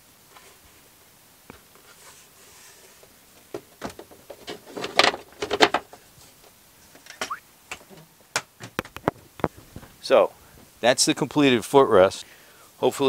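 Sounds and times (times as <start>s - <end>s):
panel knocking and scraping clatter: 3.5s - 6.0s.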